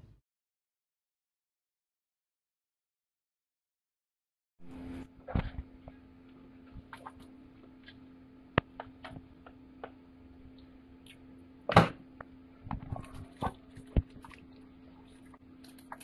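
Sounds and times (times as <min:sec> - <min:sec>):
steady low hum: 0:04.6 - 0:16.0.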